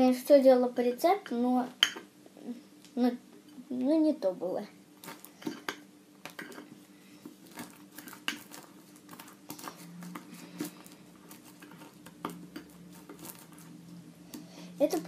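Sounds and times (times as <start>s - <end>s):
thick mixture squishing: 6.3s - 15.0s
spoon clinking and scraping glass bowl: 7.6s - 13.8s.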